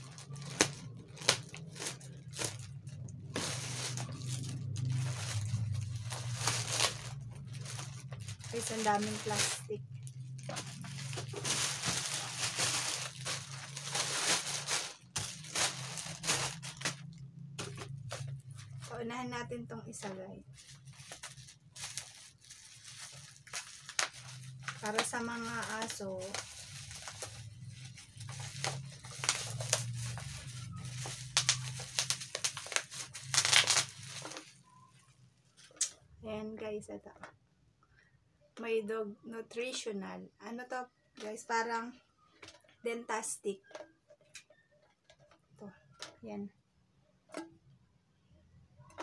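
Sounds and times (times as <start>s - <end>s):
plastic packaging crinkling: 0.0s - 18.9s, 20.5s - 34.8s.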